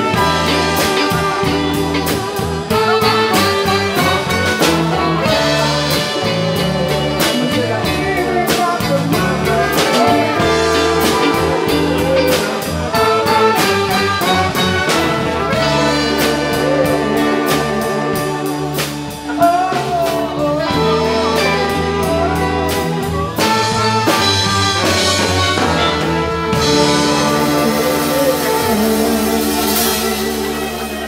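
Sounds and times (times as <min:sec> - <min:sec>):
drum kit beat: 0:00.0 - 0:31.0
electric guitar: 0:00.0 - 0:31.0
trumpet and horns: 0:00.0 - 0:31.0.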